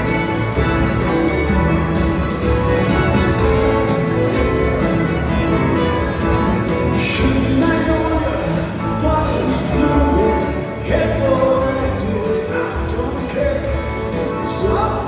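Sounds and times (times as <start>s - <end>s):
rock band with orchestra: 0.0s - 15.0s.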